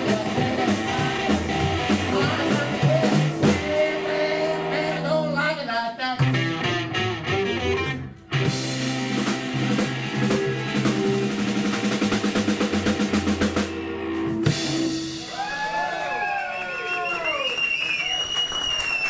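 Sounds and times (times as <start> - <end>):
rockabilly blues band playing: 0.0 - 15.6
fast run of drum hits: 8.5 - 13.8.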